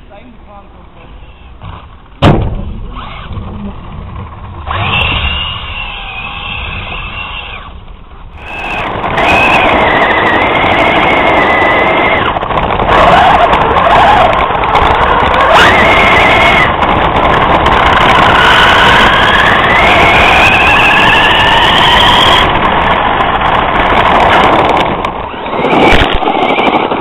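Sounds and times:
electric motor whine: 0:04.7 - 0:07.7, 0:08.4 - 0:14.4.

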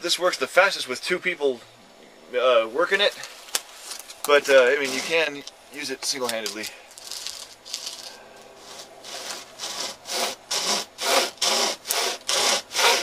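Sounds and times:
saw chain rasping through wood: 0:04.8 - 0:05.3, 0:07.2 - 0:13.0.

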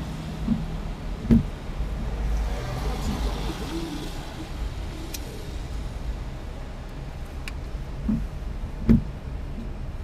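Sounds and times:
car engine rumble from inside: 0:00.0 - 0:10.0.

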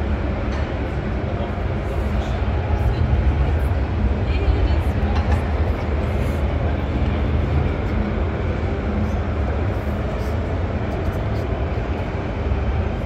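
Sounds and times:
constant low rumble: 0:00.0 - 0:13.0
crowd voices: 0:00.0 - 0:13.0.

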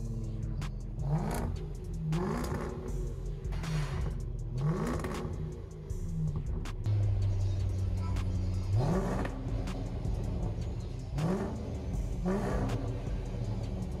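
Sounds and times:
car engine idling and revving: 0:00.0 - 0:14.0.

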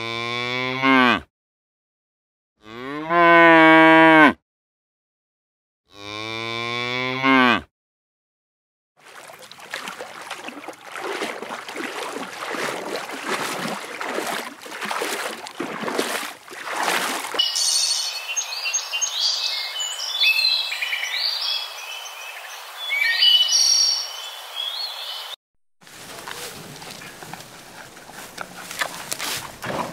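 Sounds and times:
robin singing: 0:17.4 - 0:25.4.

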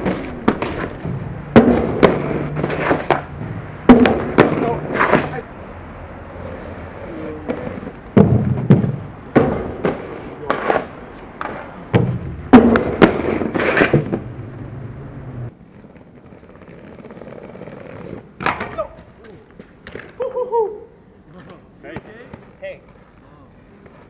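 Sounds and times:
skateboard clacks and slaps: 0:00.0 - 0:05.5, 0:07.4 - 0:14.3
skateboard rolling rumble: 0:00.0 - 0:20.2.

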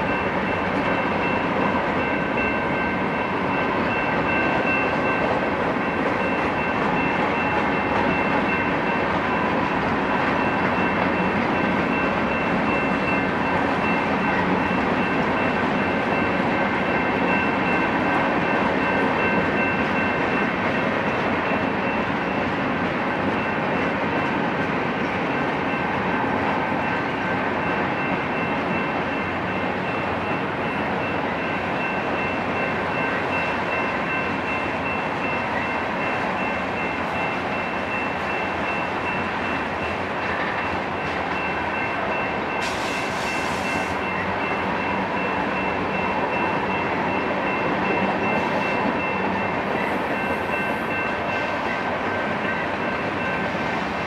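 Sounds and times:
train wheels rumbling on rails: 0:00.0 - 0:54.0
short hiss: 0:42.6 - 0:44.0.

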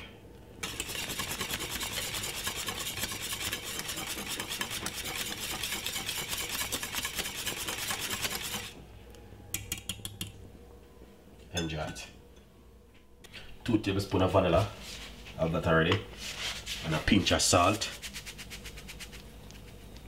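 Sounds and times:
wire whisk scraping saucepan: 0:00.6 - 0:08.8.

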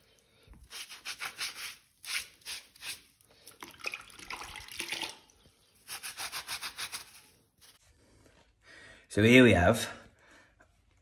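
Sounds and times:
sponge scrubbing bricks: 0:00.6 - 0:03.1, 0:05.8 - 0:07.8.

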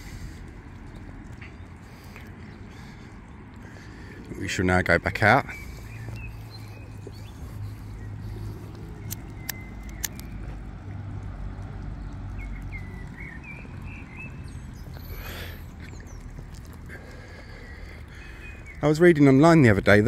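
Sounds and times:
road traffic rumble: 0:00.0 - 0:20.0
bird chirps: 0:05.2 - 0:10.6, 0:12.0 - 0:19.6
sharp clicks: 0:08.7 - 0:10.5.

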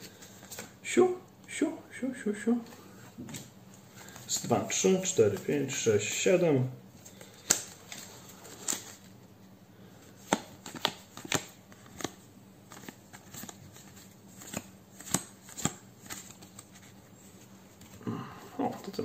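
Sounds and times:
trading cards snapping and tapping: 0:07.4 - 0:08.0, 0:10.2 - 0:13.6, 0:14.4 - 0:16.6.

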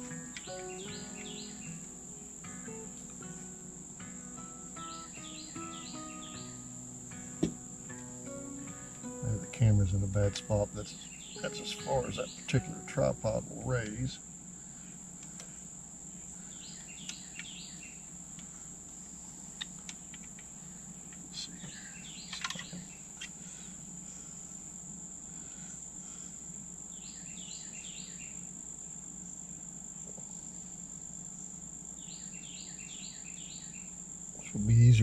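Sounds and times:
bird chirping calls: 0:00.0 - 0:02.9, 0:04.4 - 0:06.9, 0:08.6 - 0:14.1, 0:16.5 - 0:18.1, 0:21.4 - 0:23.4
insects droning: 0:00.0 - 0:35.0.

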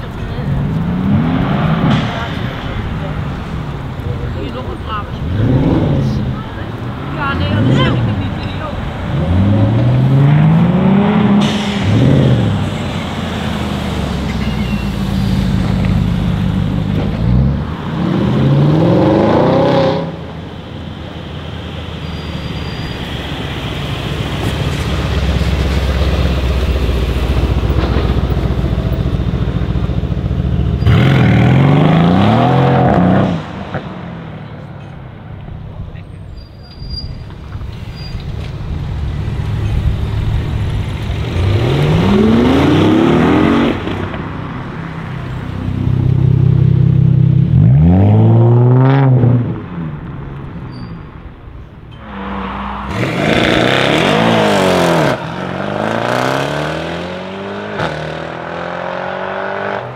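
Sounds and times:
car engine rumbling and revving: 0:00.0 - 0:59.9
car full-throttle accelerations: 0:09.1 - 0:12.6, 0:15.6 - 0:20.3, 0:30.7 - 0:34.0, 0:41.0 - 0:44.3, 0:46.0 - 0:50.0, 0:52.0 - 0:59.9.

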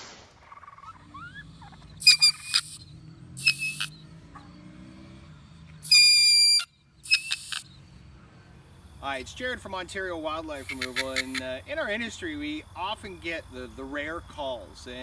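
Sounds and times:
weasel shrieking: 0:00.5 - 0:02.8, 0:03.4 - 0:03.9.

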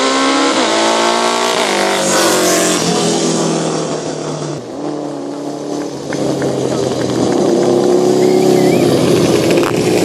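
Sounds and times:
racing motorcycles accelerating: 0:00.0 - 0:10.0.

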